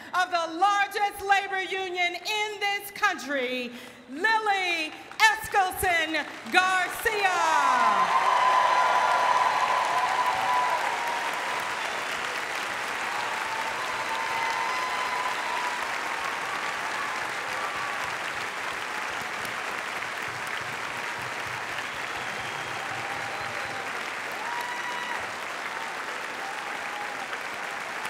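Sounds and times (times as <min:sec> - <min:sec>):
audience applauding: 0:06.2 - 0:28.0.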